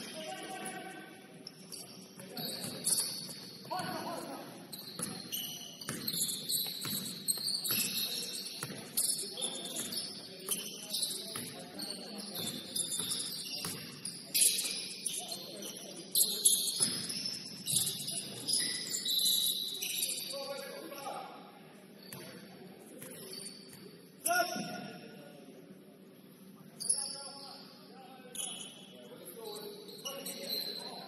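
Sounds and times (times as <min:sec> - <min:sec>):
shoes squeaking on court: 0:01.4 - 0:21.2, 0:22.0 - 0:24.0, 0:28.3 - 0:31.0.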